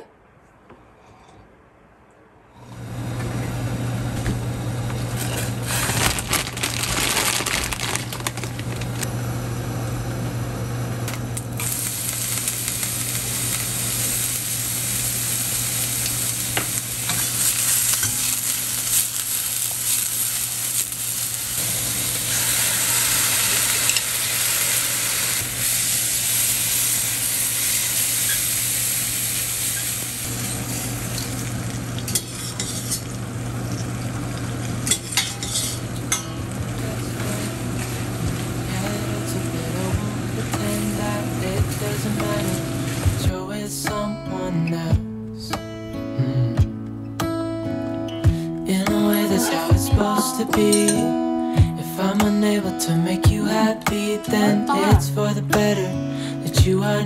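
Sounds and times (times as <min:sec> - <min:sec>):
onions sizzling in frying pan: 0:11.2 - 0:43.2.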